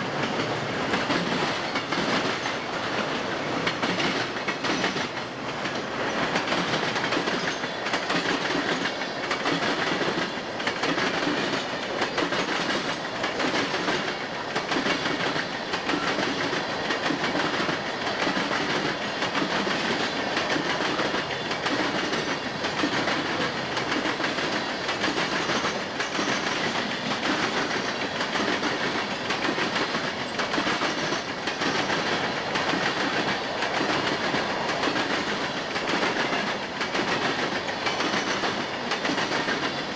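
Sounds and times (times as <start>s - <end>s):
freight train wheels rumbling: 0.0s - 39.9s
wheels clickety-clack on rail joints: 0.0s - 39.9s.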